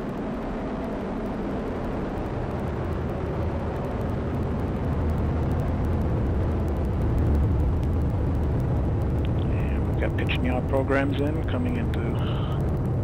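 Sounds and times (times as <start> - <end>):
rocket engines roaring: 0.0 - 13.0.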